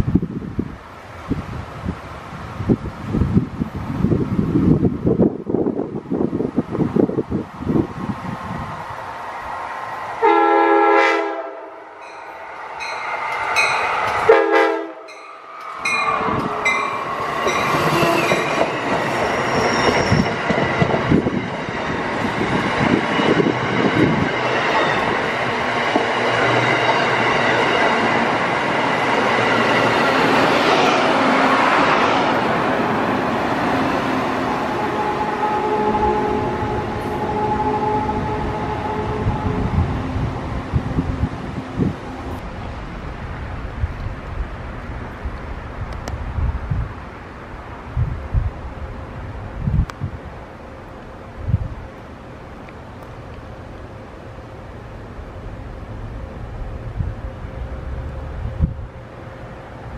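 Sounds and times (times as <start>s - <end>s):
train rushing past: 0.0s - 59.9s
train chime horn blasts: 10.2s - 18.4s, 34.7s - 40.0s
wheels clattering on rail: 12.0s - 14.4s, 15.1s - 31.1s.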